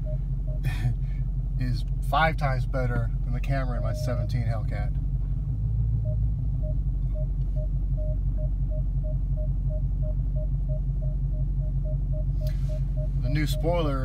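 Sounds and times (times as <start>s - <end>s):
parking sensor beeps: 0.0s - 1.0s, 3.4s - 4.8s, 6.0s - 14.0s
car engine rumbling: 0.0s - 14.0s.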